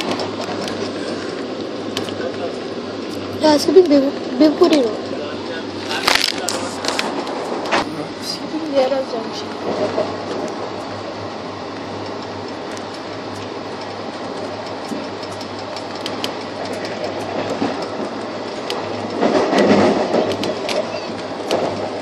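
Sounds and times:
rattling rush: 0:00.0 - 0:22.0
train wheels rumbling on track: 0:00.0 - 0:22.0
wheels clicking over rails: 0:08.8 - 0:22.0.

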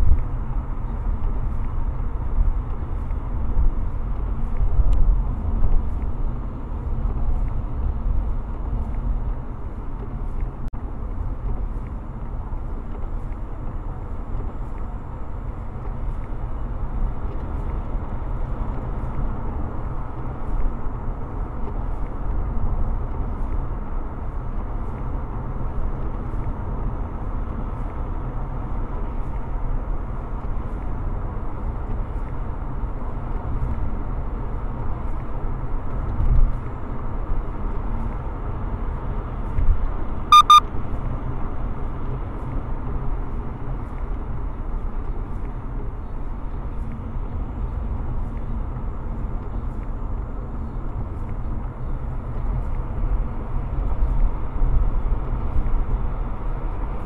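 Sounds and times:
low engine rumble: 0:00.0 - 0:57.0
road and tyre noise: 0:00.0 - 0:57.0
high electronic beeps: 0:40.3 - 0:40.6.

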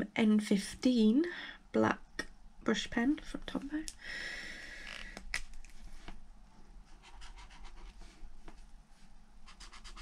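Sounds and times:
brush pen scratching on paper: 0:06.9 - 0:08.0, 0:09.4 - 0:10.0.

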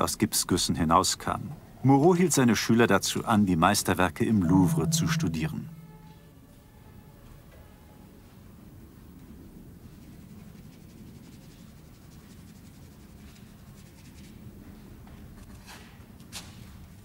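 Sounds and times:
low steady hum: 0:04.4 - 0:06.1.

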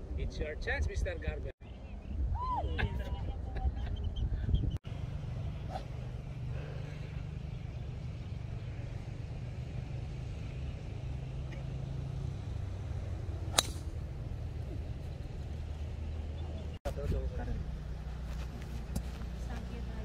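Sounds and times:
golf club striking ball: 0:13.4 - 0:14.1.

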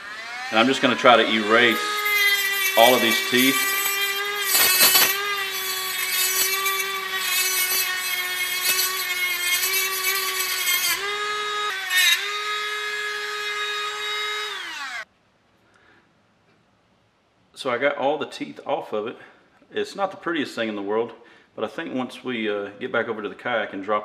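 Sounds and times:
grinding plastic: 0:00.0 - 0:12.3
rotary tool whining: 0:00.0 - 0:15.1.

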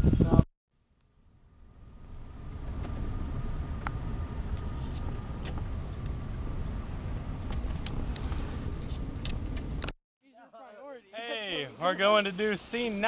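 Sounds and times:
car road and engine rumble: 0:00.8 - 0:10.0.

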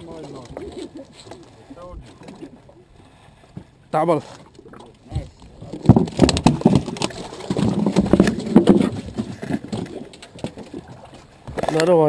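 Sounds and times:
fish flapping on boat deck: 0:06.0 - 0:11.8.

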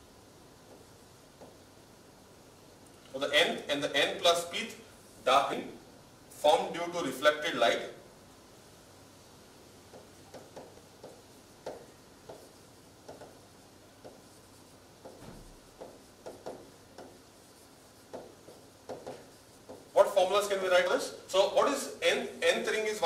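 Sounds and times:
stylus tapping on screen: 0:00.6 - 0:01.6, 0:09.9 - 0:14.4, 0:15.0 - 0:17.2, 0:18.0 - 0:19.9.

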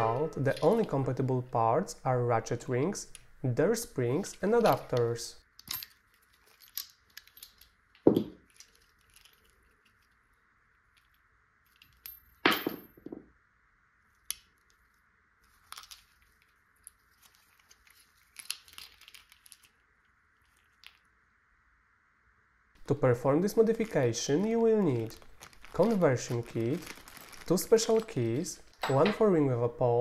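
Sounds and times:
metal parts clicking and knocking: 0:00.0 - 0:01.3, 0:04.2 - 0:10.3, 0:10.9 - 0:13.2, 0:15.6 - 0:19.7, 0:24.5 - 0:29.3.

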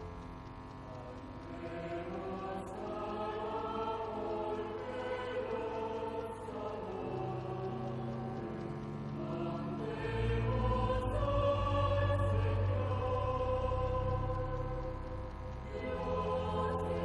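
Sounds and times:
slow choral singing: 0:00.0 - 0:17.0.

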